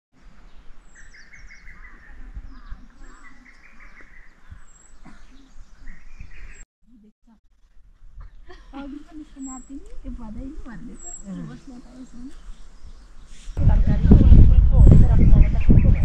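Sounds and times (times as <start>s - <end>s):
small birds chirping: 0.3s - 7.0s, 8.2s - 13.6s.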